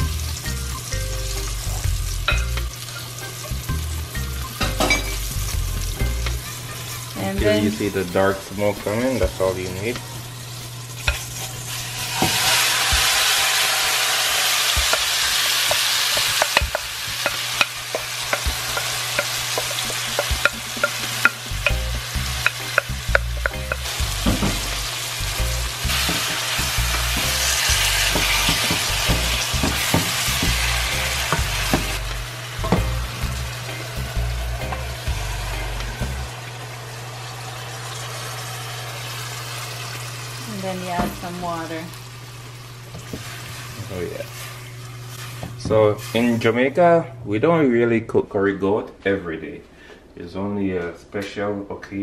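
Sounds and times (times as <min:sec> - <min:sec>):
meat sizzling in hot oil: 0:00.0 - 0:46.6
wooden spoon scraping a pot: 0:43.1 - 0:46.4.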